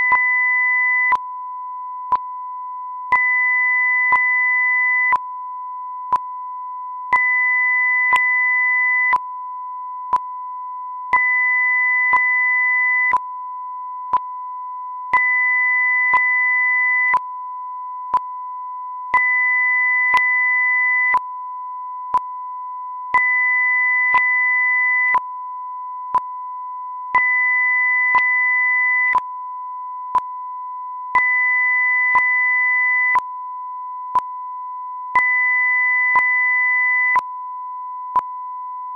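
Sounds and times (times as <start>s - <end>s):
steady sine test tone: 0.0s - 38.9s.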